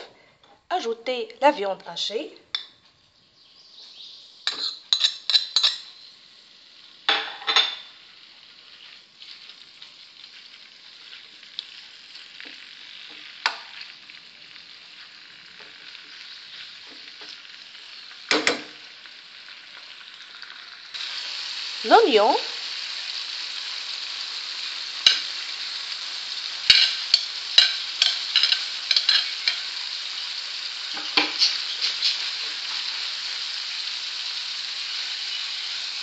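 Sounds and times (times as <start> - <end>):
meat sizzling in a frying pan: 3.4 - 36.0
spoon and plate clinking on pan: 4.5 - 6.1, 7.1 - 7.9, 25.0 - 25.4, 26.7 - 29.8.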